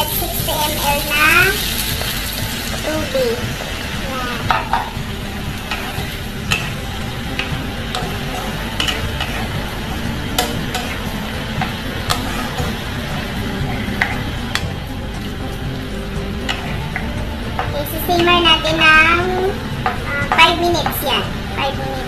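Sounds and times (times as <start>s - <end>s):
food sizzling in a wok: 0.0s - 22.0s
spatula scraping and tapping pan: 5.6s - 12.9s, 13.7s - 14.8s, 16.4s - 18.6s.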